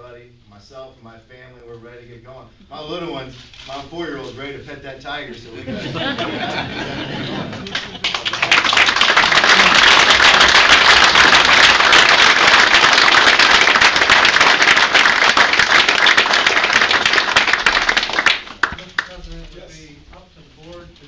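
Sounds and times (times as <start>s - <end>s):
audience applauding: 7.3s - 19.2s.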